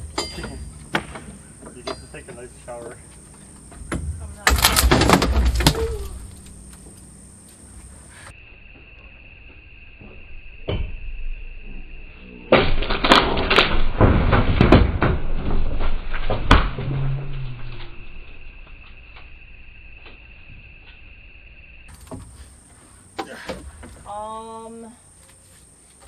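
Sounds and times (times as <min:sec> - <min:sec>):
sharp cracks and knocks: 0:00.0 - 0:07.6, 0:12.5 - 0:21.1, 0:21.9 - 0:22.4
wood and ceiling crashing: 0:04.0 - 0:06.3, 0:12.5 - 0:18.3.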